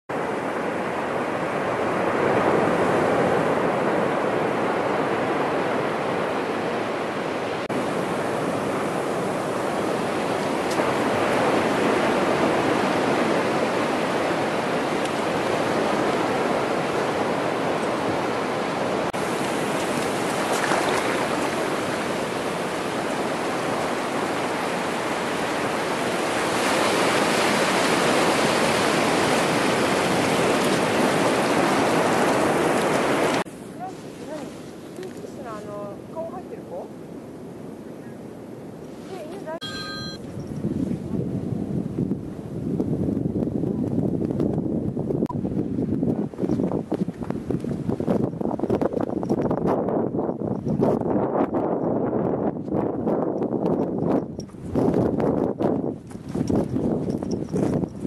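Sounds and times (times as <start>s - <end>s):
surf washing over sand: 0.1s - 40.2s.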